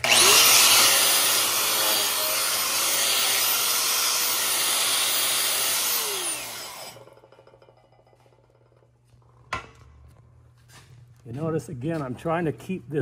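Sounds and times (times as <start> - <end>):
angle grinder wire-brushing steel: 0.0 - 7.7.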